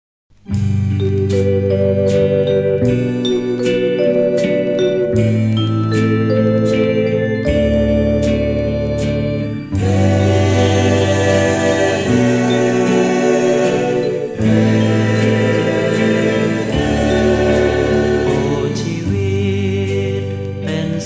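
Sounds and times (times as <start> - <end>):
pop song with group vocal harmonies: 9.8 - 21.0.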